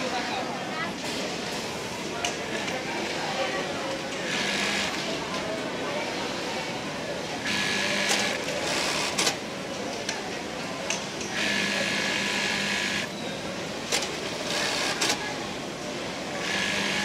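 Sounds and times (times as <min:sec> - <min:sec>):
sewing machine running: 0:04.3 - 0:05.1, 0:07.4 - 0:09.4, 0:11.4 - 0:13.1, 0:13.9 - 0:15.2, 0:16.4 - 0:17.0.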